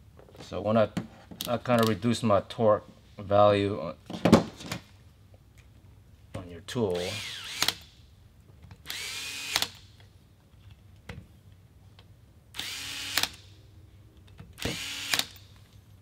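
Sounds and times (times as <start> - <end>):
electric screwdriver whirring: 8.9 - 9.8, 12.6 - 13.4, 14.6 - 15.4.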